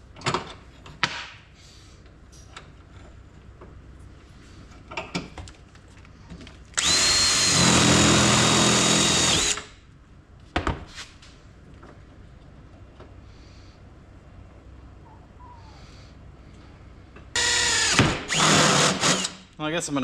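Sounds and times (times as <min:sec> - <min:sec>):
cordless drill whining: 0:06.8 - 0:09.7, 0:17.4 - 0:19.4.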